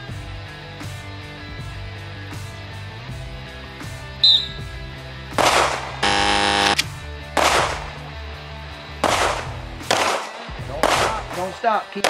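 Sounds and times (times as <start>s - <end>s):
background music: 0.0s - 12.0s
pistol shots: 5.4s - 8.0s, 9.0s - 11.4s
loud buzzing tone: 6.0s - 6.9s.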